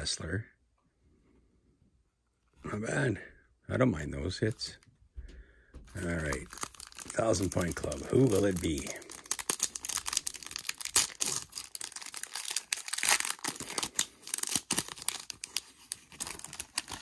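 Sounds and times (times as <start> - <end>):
plastic sleeves crinkling: 5.9 - 17.0.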